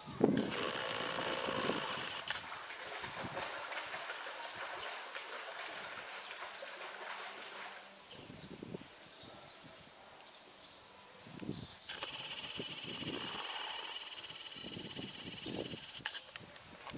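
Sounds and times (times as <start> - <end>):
bear splashing in water: 0.4 - 8.0.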